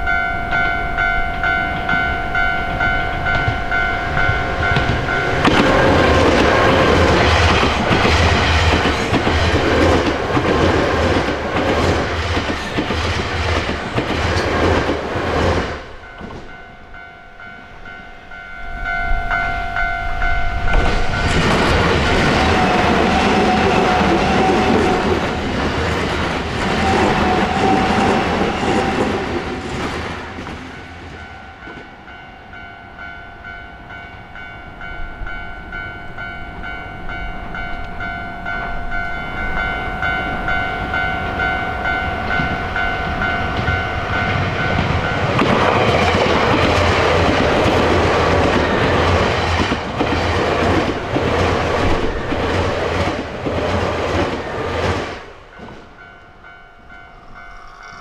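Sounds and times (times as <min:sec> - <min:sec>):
crossing warning bell ringing: 0:00.0 - 0:58.0
train wheels clattering: 0:02.7 - 0:16.7, 0:42.2 - 0:56.2.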